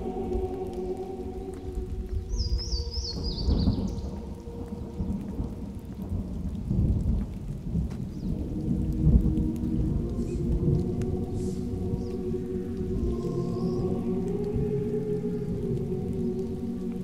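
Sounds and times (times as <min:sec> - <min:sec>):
rolling thunder: 0:01.5 - 0:14.7.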